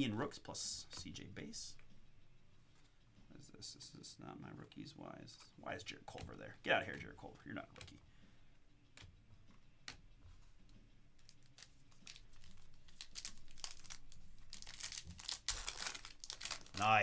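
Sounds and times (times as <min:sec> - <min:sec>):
foil wrapper crinkling: 0:11.2 - 0:17.0.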